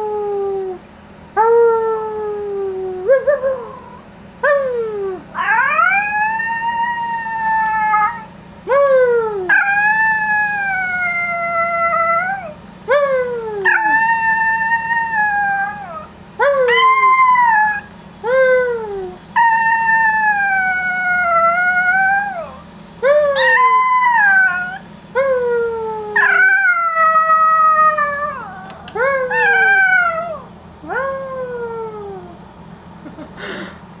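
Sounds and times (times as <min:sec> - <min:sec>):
small dog howling: 0:01.4 - 0:32.4
dog yelping: 0:23.2 - 0:24.9, 0:26.2 - 0:31.1.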